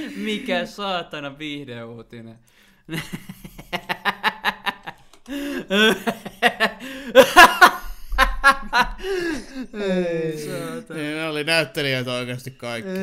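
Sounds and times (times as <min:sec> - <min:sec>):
men laughing: 0:02.9 - 0:11.0.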